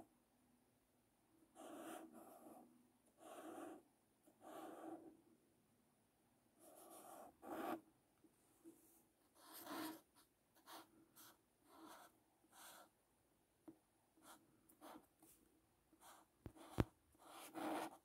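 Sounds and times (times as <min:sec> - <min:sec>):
marker writing on paper: 0:01.6 - 0:02.6, 0:03.2 - 0:03.8, 0:04.4 - 0:05.0, 0:06.6 - 0:07.8, 0:09.3 - 0:12.9, 0:14.2 - 0:15.3, 0:16.0 - 0:18.0.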